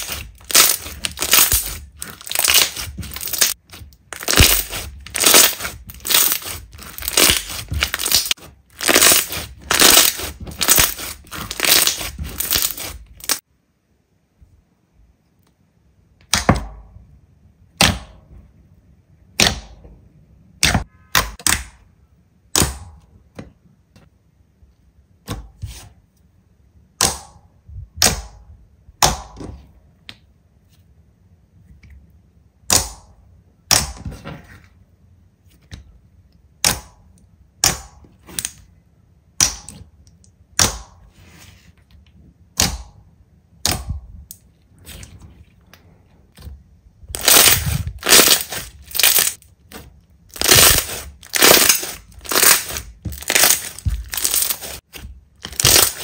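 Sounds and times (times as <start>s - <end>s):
slime snapping and popping: 0.0s - 3.6s, 4.2s - 13.4s, 47.2s - 49.4s, 50.3s - 54.8s, 55.4s - 56.0s
slime crunching and crackling: 0.0s - 13.4s, 47.1s - 56.0s.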